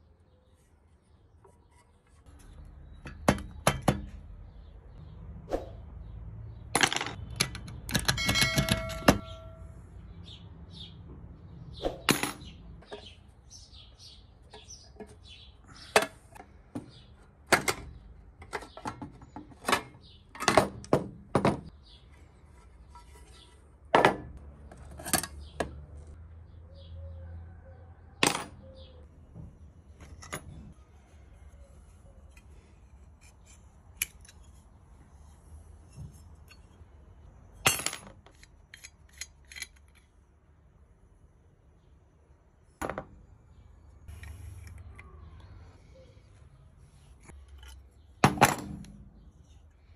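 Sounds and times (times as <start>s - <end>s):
metal parts clinking and tapping: 6.8s - 9.7s, 37.6s - 40.2s
short metallic ring: 8.1s - 9.8s.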